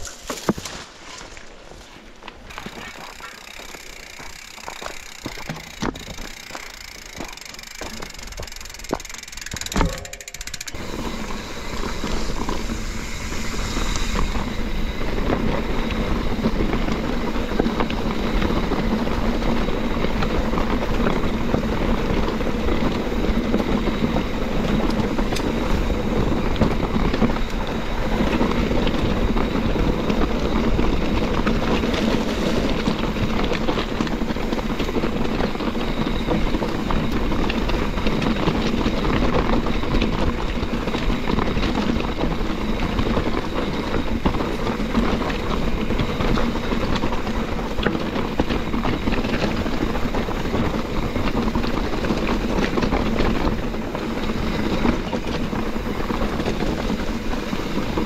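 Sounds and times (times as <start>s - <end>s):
bike rattling: 0.0s - 58.0s
wind and tyre noise: 0.0s - 58.0s
bike clacking over rocks: 2.2s - 12.8s.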